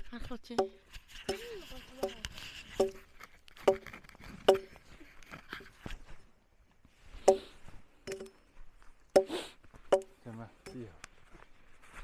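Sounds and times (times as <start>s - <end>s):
axe chopping wood: 4.5s - 4.7s.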